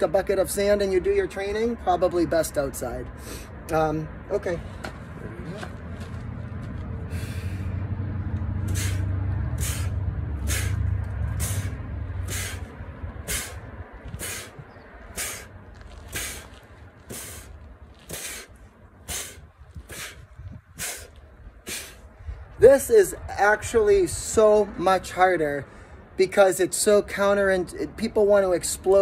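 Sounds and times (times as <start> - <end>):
low rumble: 5.1 - 17.9.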